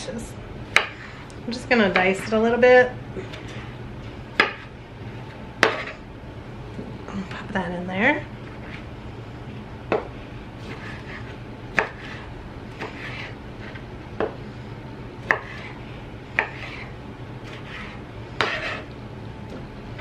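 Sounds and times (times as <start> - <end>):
knife chopping on wooden block: 5.6 - 5.9, 11.7 - 12.2, 15.3 - 15.7, 16.4 - 16.8, 18.4 - 18.8.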